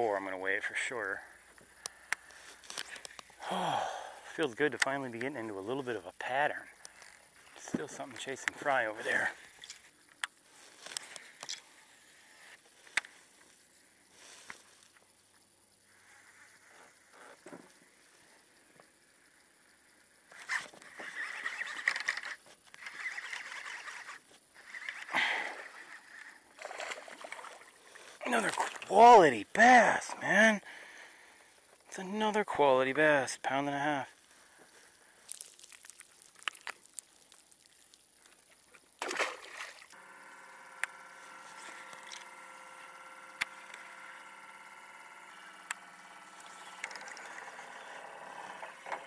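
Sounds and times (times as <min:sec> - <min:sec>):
fishing reel whirring: 0:06.8 - 0:07.4, 0:20.3 - 0:28.2, 0:39.8 - 0:49.0
fish splashing into water: 0:26.6 - 0:27.8, 0:35.3 - 0:39.9
electric motor whine: 0:40.0 - 0:49.0.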